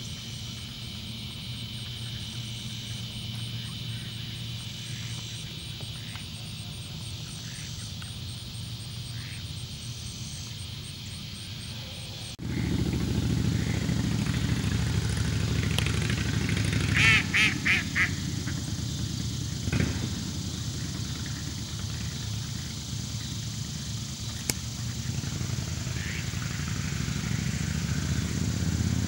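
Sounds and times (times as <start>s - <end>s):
mallard quacking: 16.9s - 18.2s.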